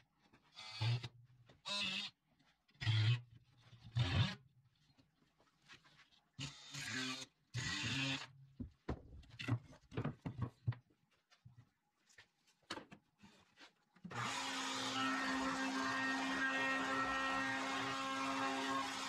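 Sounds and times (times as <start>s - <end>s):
oscillating multi-tool cutting wood: 0.5s - 2.2s, 2.8s - 3.3s, 6.4s - 8.4s, 14.1s - 19.0s
router humming: 14.1s - 19.0s.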